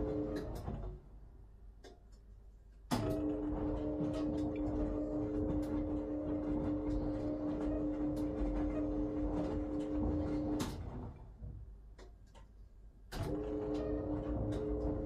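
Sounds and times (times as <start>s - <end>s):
washing machine drum motor humming: 0.0s - 0.8s, 2.9s - 12.1s, 13.1s - 15.0s.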